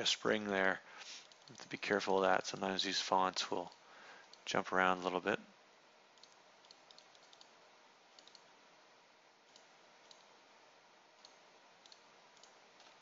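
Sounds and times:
computer mouse clicks: 0:01.2 - 0:01.8, 0:06.2 - 0:07.5, 0:08.1 - 0:08.5, 0:09.5 - 0:10.3, 0:11.2 - 0:13.0.

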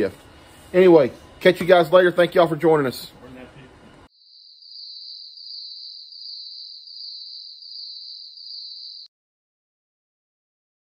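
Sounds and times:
high-pitched cricket-like chirring: 0:04.1 - 0:09.1.

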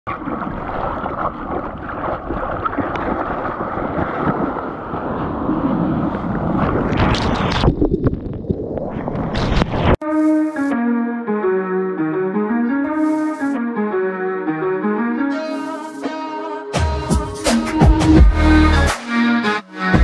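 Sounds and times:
sharp splashes: 0:00.1 - 0:08.2
wind noise on microphone: 0:00.3 - 0:10.0
guitar music: 0:10.0 - 0:20.0.

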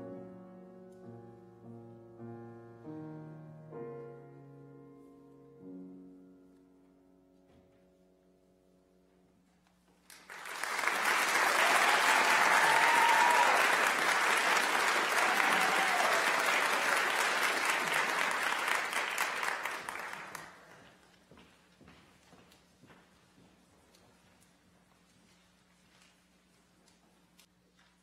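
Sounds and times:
audience applause: 0:10.1 - 0:20.9.

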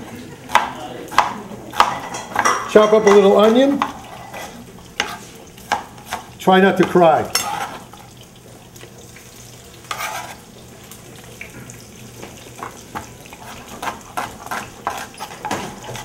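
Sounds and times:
peppers sizzling in a pan: 0:00.0 - 0:16.0
knife chopping on plastic board: 0:00.5 - 0:04.0.

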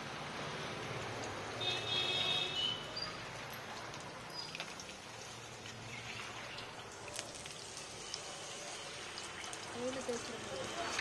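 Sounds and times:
hot oil sizzling: 0:04.0 - 0:11.0.

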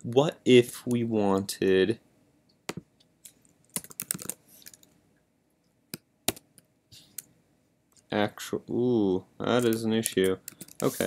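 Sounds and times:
keyboard keys clicking: 0:03.7 - 0:04.9.

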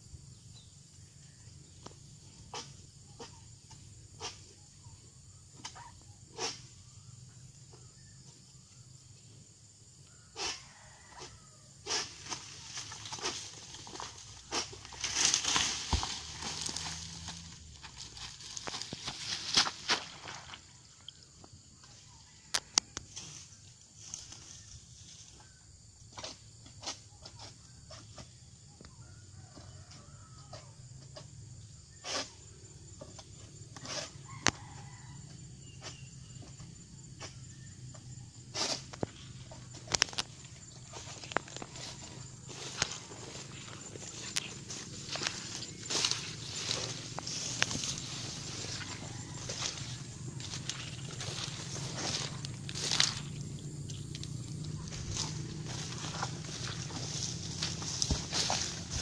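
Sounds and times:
sickle cracking palm stalks: 0:11.9 - 0:20.6, 0:38.6 - 0:59.0
palm fronds rustling: 0:12.0 - 0:20.8, 0:38.6 - 0:59.0
rooster crowing faintly: 0:40.9 - 0:53.2.

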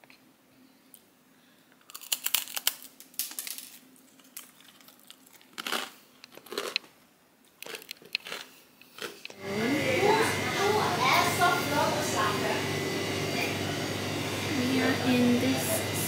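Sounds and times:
crispbread crunching: 0:01.8 - 0:06.9, 0:07.6 - 0:09.2.

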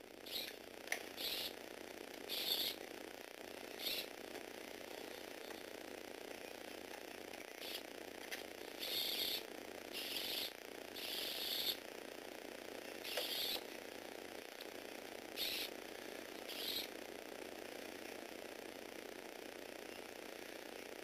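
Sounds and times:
toy gearbox motor whirring: 0:00.2 - 0:00.6, 0:01.2 - 0:01.5, 0:02.3 - 0:02.8, 0:03.8 - 0:04.1, 0:08.7 - 0:11.8, 0:13.0 - 0:13.6, 0:15.4 - 0:15.7.

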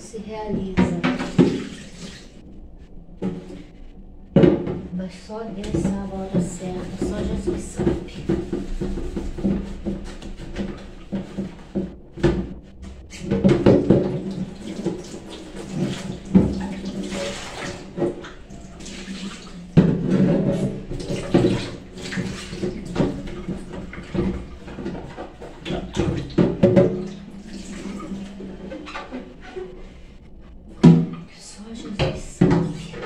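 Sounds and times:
water running in a steel sink: 0:00.9 - 0:02.4, 0:05.6 - 0:12.3, 0:13.1 - 0:29.7.

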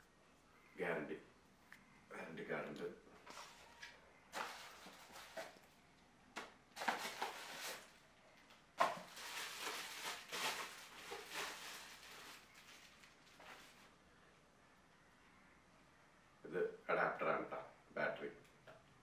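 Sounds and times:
cardboard and plastic wrap rustling: 0:03.3 - 0:05.7, 0:06.7 - 0:08.0, 0:08.8 - 0:13.9.

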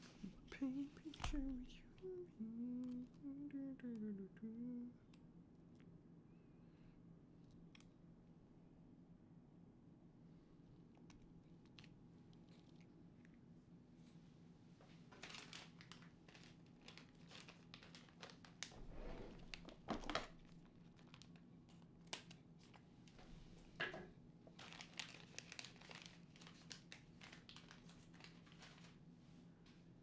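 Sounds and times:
plastic bag crinkling: 0:15.1 - 0:21.4, 0:24.5 - 0:29.0.

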